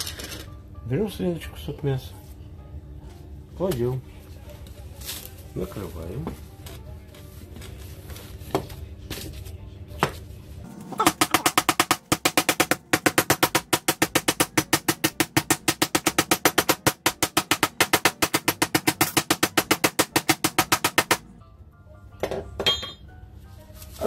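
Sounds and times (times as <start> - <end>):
meat mallet pounding meat: 10.8 - 21.3.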